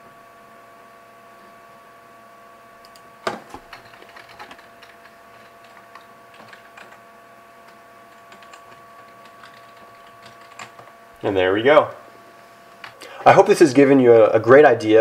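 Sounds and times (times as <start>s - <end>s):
faint steady hum: 0.0s - 15.0s
fingers tapping at a computer: 2.8s - 7.0s, 7.6s - 10.9s, 12.8s - 13.0s.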